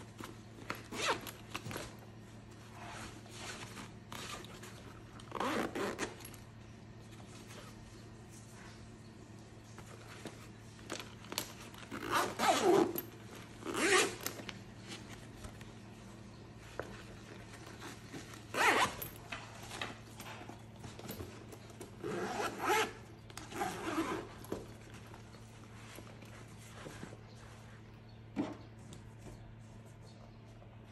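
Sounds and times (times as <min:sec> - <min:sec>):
zipper being pulled: 0:00.8 - 0:01.4, 0:02.7 - 0:06.4, 0:11.8 - 0:14.5, 0:17.7 - 0:19.2, 0:22.0 - 0:24.5.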